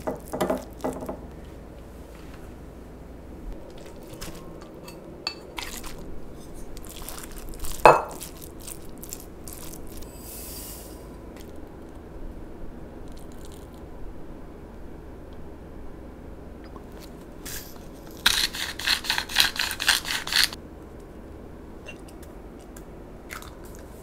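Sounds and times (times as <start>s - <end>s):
meat squishing: 3.6s - 10.1s, 13.1s - 13.8s
short hiss: 10.1s - 11.1s.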